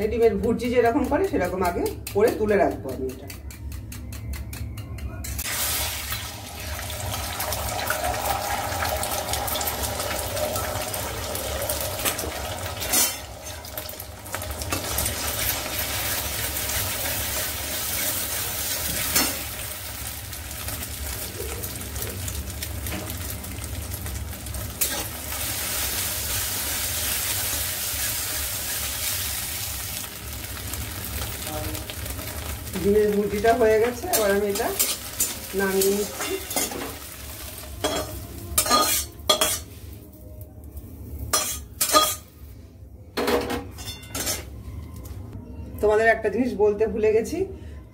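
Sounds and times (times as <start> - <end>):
spatula clicking against pan: 0.3 - 5.2
eggs sizzling in oil: 5.4 - 40.1
metal spatula scraping pan: 37.8 - 39.8.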